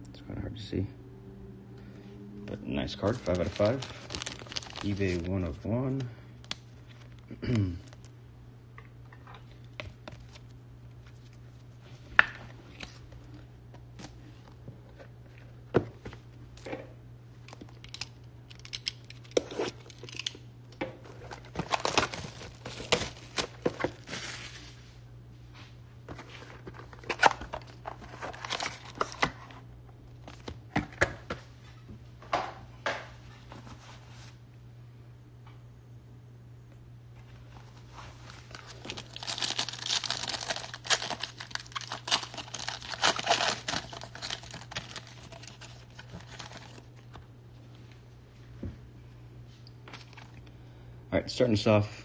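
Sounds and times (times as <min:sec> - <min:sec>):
foil pack crinkling: 0:02.8 - 0:08.1, 0:17.5 - 0:20.4, 0:21.1 - 0:24.7, 0:26.2 - 0:29.6, 0:38.0 - 0:47.2.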